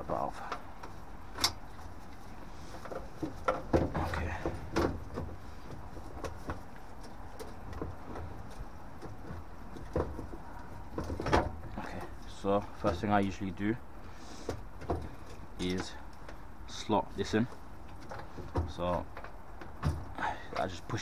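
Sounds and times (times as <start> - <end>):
clicks and knocks of metal parts: 0.0 - 13.4.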